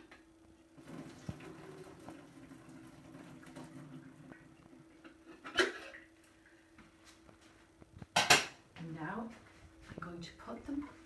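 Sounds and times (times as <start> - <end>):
faint steady hum: 0.0 - 11.0
water pouring into sink: 0.8 - 5.0.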